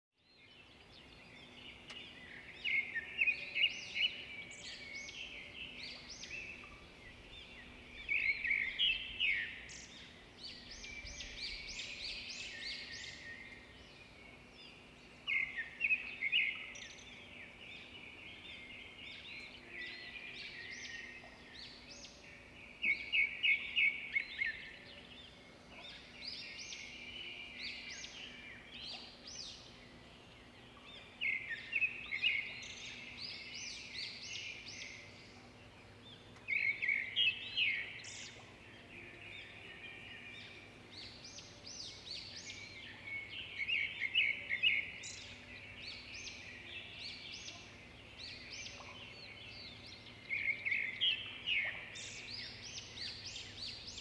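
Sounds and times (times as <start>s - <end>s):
birds chirping: 0.4s - 54.0s.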